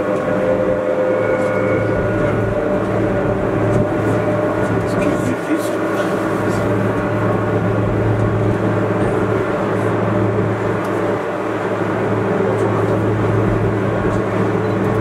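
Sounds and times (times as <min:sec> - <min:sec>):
electric train motor hum: 0:00.0 - 0:15.0
train running gear rumble: 0:00.0 - 0:15.0.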